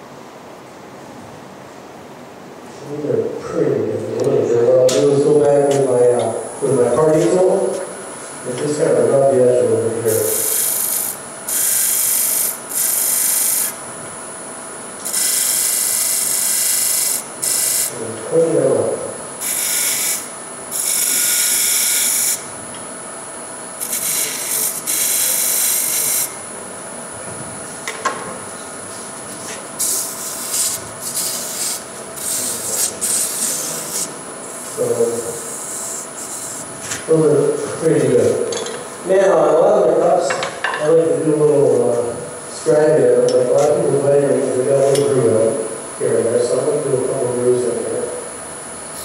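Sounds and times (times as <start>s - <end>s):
lathe tool hissing on wood: 10.1s - 13.8s, 15.0s - 18.0s, 19.4s - 22.4s, 23.8s - 26.4s, 29.8s - 36.7s.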